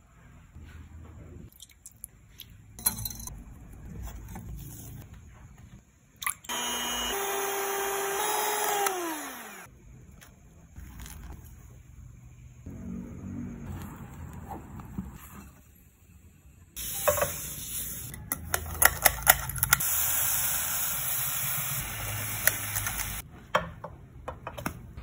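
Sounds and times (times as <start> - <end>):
electric hand mixer whining: 6.5 - 9.7.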